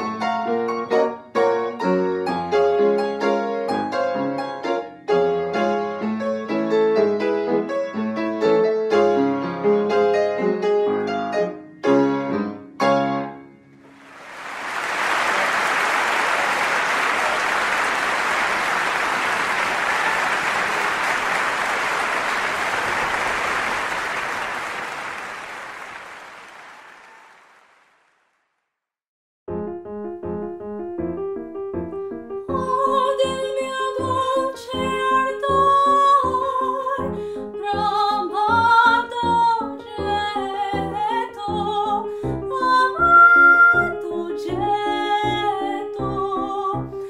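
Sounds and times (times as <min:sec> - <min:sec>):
piano playing: 0:00.0 - 0:14.2, 0:29.5 - 0:47.0
applause: 0:13.8 - 0:28.6.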